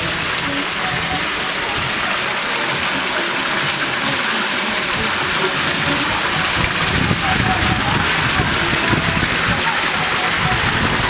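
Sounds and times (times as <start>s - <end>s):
fountain water splashing into trough: 0.0s - 11.0s.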